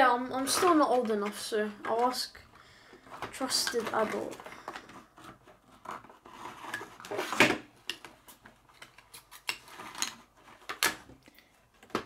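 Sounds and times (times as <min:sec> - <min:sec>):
cardboard packaging rustling: 0:03.0 - 0:11.1.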